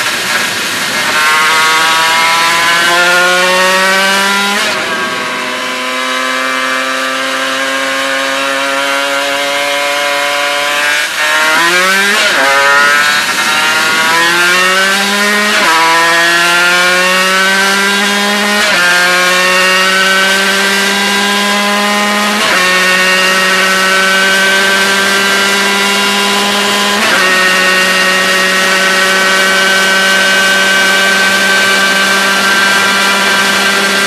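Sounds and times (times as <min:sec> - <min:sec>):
motorcycle engine accelerating: 0:00.0 - 0:34.0.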